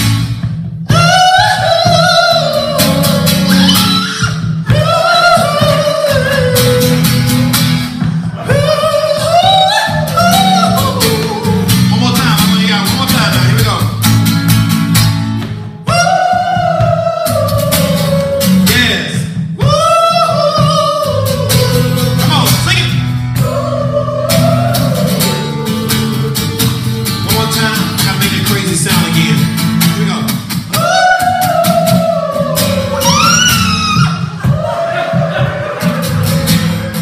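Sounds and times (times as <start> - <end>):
acoustic guitar strumming: 0.0 - 37.0
man singing: 8.4 - 13.9, 25.6 - 30.3.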